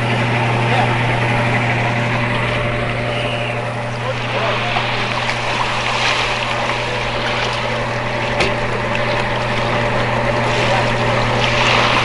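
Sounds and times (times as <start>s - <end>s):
boat motor droning: 0.0s - 12.0s
wind and water hiss: 2.9s - 12.0s.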